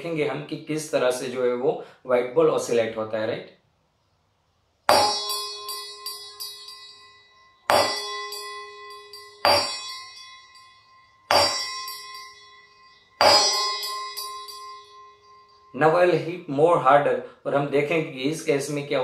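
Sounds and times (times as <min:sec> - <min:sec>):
spoon striking steel tumbler: 0:04.9 - 0:15.8.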